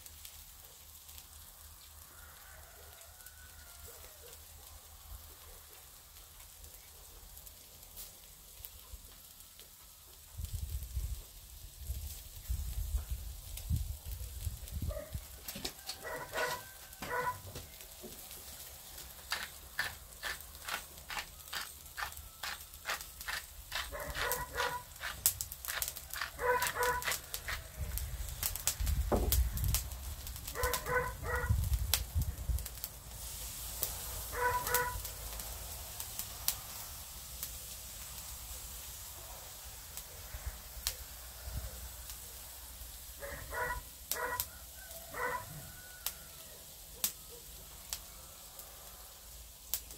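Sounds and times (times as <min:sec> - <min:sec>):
crackles and pops from coals: 0:00.0 - 0:49.9
meat grilling over charcoal: 0:00.0 - 0:49.9
dog barking: 0:14.9 - 0:15.2, 0:16.0 - 0:17.5, 0:23.9 - 0:24.9, 0:26.4 - 0:27.1, 0:30.5 - 0:31.6, 0:34.3 - 0:35.0, 0:43.2 - 0:44.5, 0:45.1 - 0:45.5.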